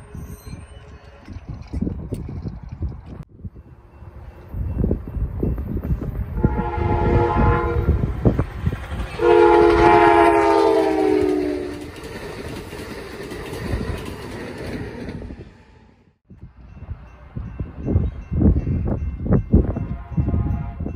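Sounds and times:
train rumbling on rails: 0:00.0 - 0:20.9
train air horn blasts: 0:06.4 - 0:08.2, 0:09.2 - 0:11.9, 0:19.8 - 0:20.9.

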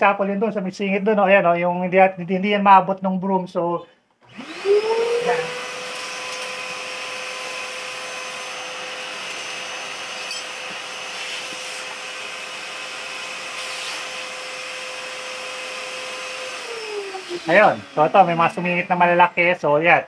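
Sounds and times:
shop vacuum whining: 0:04.2 - 0:19.8.

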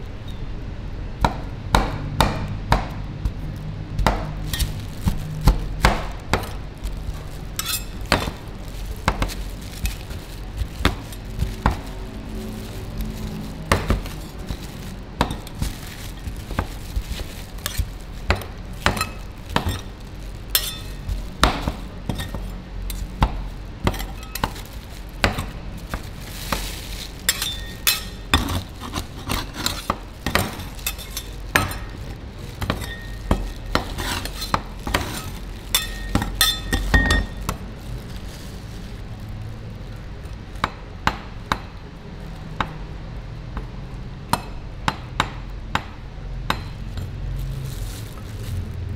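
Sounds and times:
metal scrapers clinking on steel plate: 0:07.6 - 0:08.0, 0:20.6 - 0:21.0, 0:27.3 - 0:29.9, 0:32.6 - 0:37.3.

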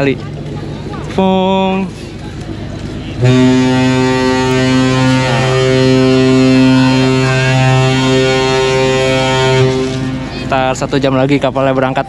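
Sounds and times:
ship horn long deep blast: 0:03.0 - 0:11.8.

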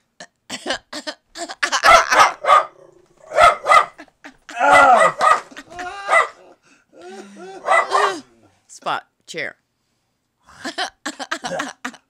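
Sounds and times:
dog barking: 0:01.7 - 0:04.0, 0:04.6 - 0:06.4, 0:07.6 - 0:08.3.

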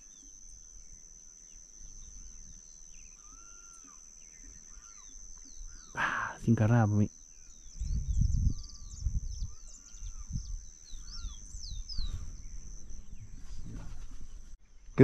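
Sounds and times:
birds chirping: 0:00.0 - 0:15.0
wind rumbling on microphone: 0:07.6 - 0:15.0.

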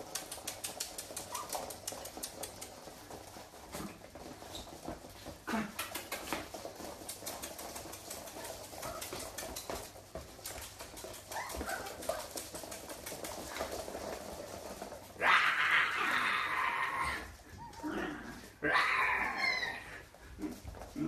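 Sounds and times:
claws clicking on wooden floor: 0:00.0 - 0:21.0
puppies whimpering: 0:18.7 - 0:20.0.

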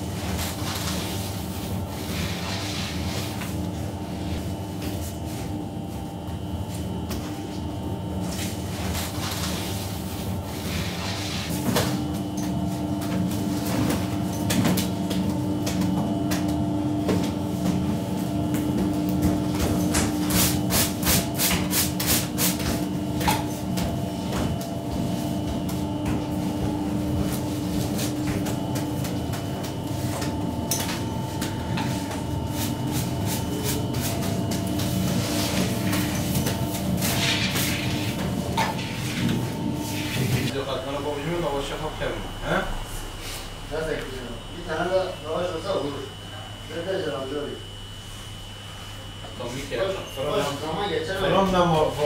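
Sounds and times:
steady hum: 0:00.0 - 0:52.0
brush scrubbing bread loaf: 0:31.9 - 0:40.5.

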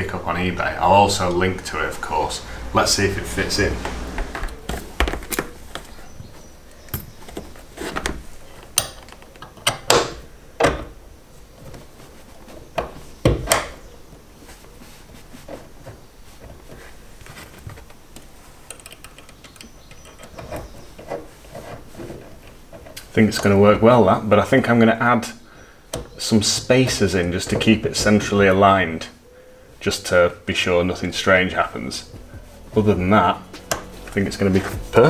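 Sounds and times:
small metal clicks and knocks: 0:18.2 - 0:21.3.

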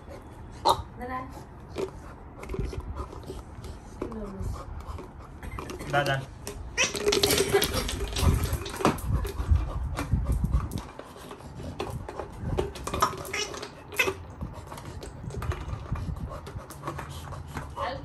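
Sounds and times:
puppy chewing plastic ball: 0:00.0 - 0:18.0
ball knocking on tile floor: 0:06.4 - 0:09.1.

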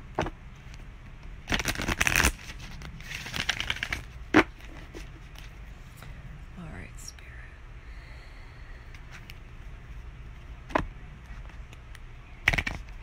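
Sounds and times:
cards being shuffled: 0:01.4 - 0:05.6, 0:12.4 - 0:13.0.

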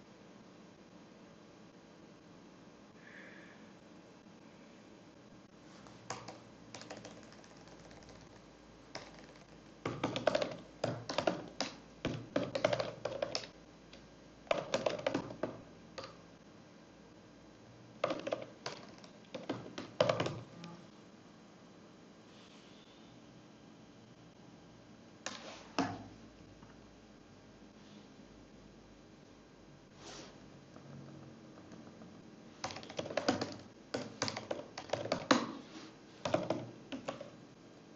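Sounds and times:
typing on computer keyboard: 0:05.8 - 0:13.6, 0:14.5 - 0:16.2, 0:18.0 - 0:20.5, 0:32.6 - 0:35.5, 0:36.2 - 0:37.4.

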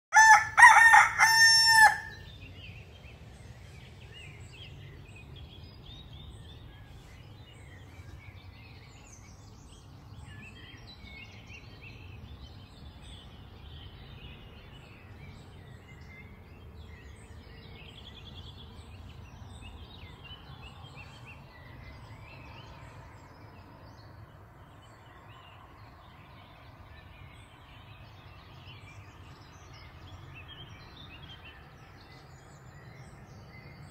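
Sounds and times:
rooster crowing: 0:00.1 - 0:02.2
songbirds chirping faintly: 0:00.1 - 0:33.9.

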